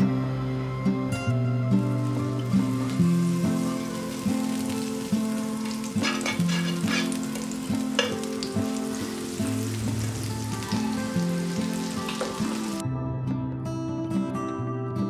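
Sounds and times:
soft plucked background music: 0.0 - 15.0
butter sizzling in a frying pan: 1.9 - 12.8.

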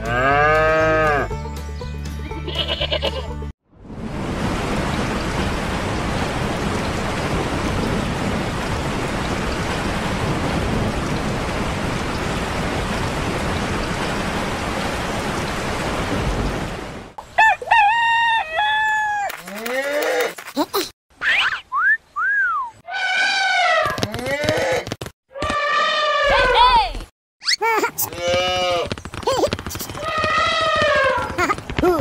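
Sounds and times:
steady rain falling: 4.0 - 17.2.

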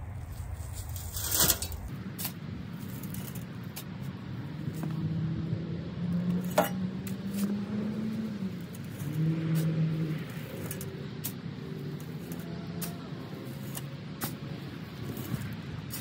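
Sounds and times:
vehicle engine humming: 0.0 - 16.0
shovel scraping soil: 0.4 - 3.9, 6.4 - 16.0
soil thrown into metal wheelbarrow: 0.9 - 2.3.

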